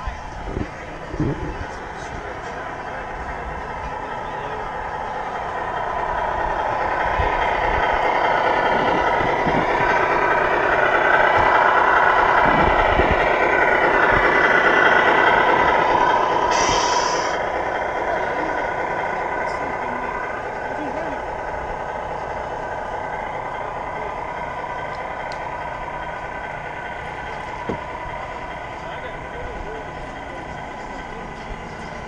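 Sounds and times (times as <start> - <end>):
diesel truck engine: 0.0 - 32.0
air brake hiss: 16.5 - 17.4.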